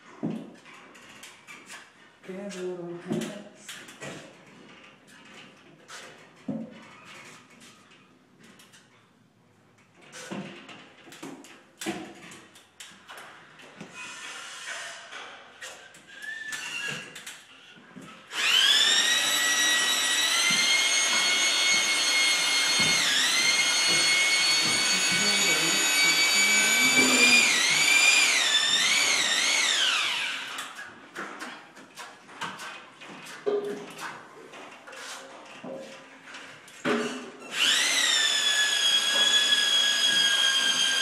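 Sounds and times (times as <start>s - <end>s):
power drill motor running: 18.3s - 30.8s, 37.5s - 41.0s
faint knocks and scrapes: 30.6s - 37.4s.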